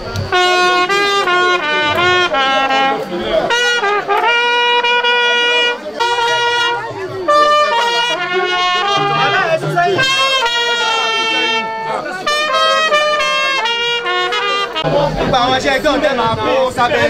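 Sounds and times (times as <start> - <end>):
trumpets playing a tune: 0.0 - 17.0.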